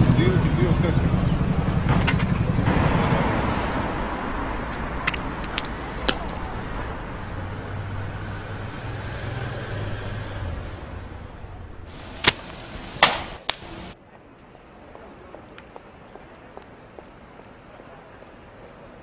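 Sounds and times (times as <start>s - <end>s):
motorcycle engine running: 0.0s - 4.0s
street traffic noise: 0.0s - 19.0s
sharp clicks: 5.0s - 6.4s.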